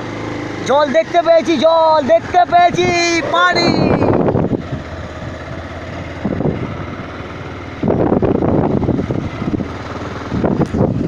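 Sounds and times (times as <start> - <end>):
motorcycle engine running: 0.0 - 11.0
wind buffeting microphone: 2.3 - 11.0.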